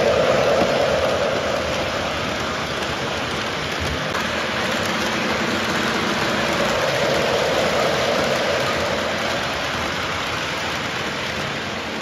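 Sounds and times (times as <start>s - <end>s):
model train wheels rumbling: 0.0s - 12.0s.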